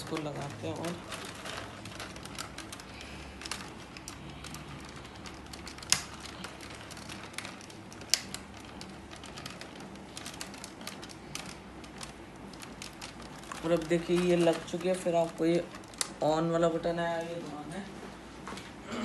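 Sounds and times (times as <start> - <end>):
plastic clicking and rattling: 0.0 - 16.9
sharp plastic snaps: 2.0 - 15.0, 15.7 - 16.2.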